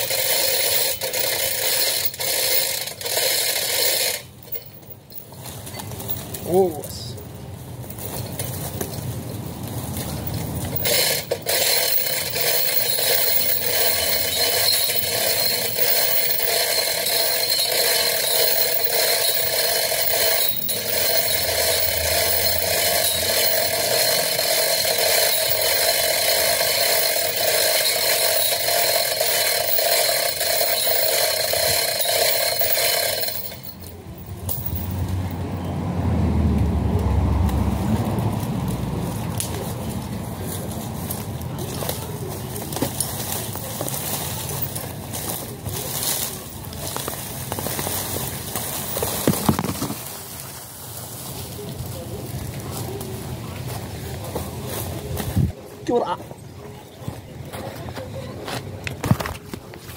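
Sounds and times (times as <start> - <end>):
chain hoist ratchet clicking: 0.0 - 7.0, 9.9 - 35.4, 41.1 - 50.1.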